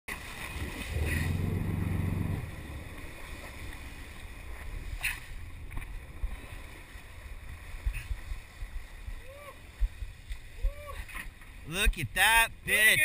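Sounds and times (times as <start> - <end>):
water splashing against boat: 0.1 - 13.0
low rumble: 0.4 - 6.5.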